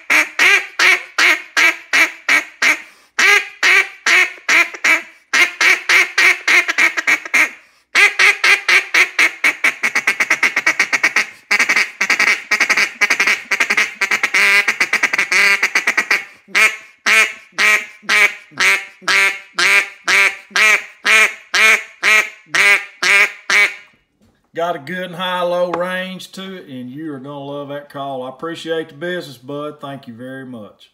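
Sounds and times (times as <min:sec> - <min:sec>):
duck call quacks and chatter: 0:00.0 - 0:23.9.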